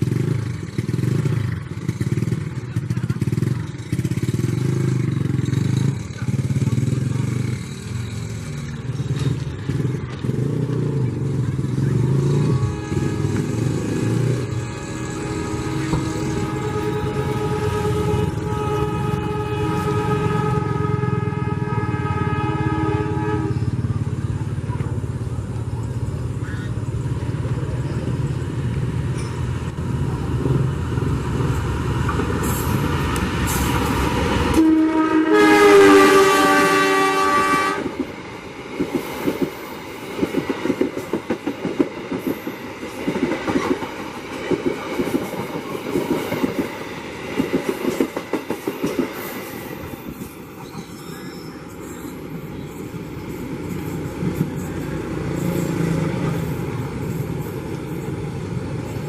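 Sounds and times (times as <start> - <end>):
train wheels clacking over rail joints: 0.0 - 18.8, 30.4 - 58.3
locomotive engine rumble: 0.0 - 38.8
locomotive horn: 12.1 - 23.8, 34.4 - 38.0.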